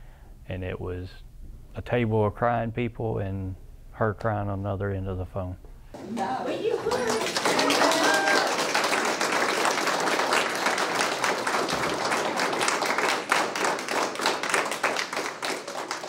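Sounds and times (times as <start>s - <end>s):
people applauding: 6.1s - 16.0s.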